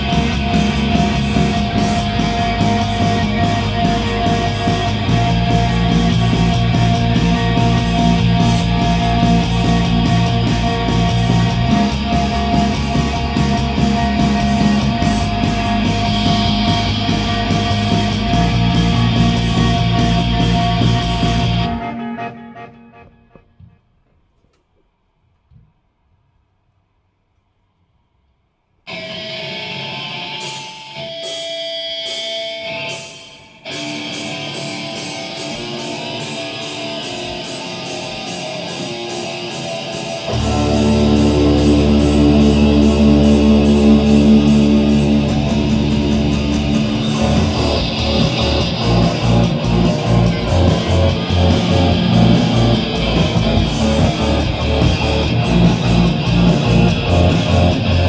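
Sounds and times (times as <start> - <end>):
drums pounding beat: 0.0 - 21.8, 34.8 - 58.0
bass guitar: 0.0 - 23.8, 33.7 - 58.0
electric guitar: 0.0 - 23.8, 28.9 - 58.0.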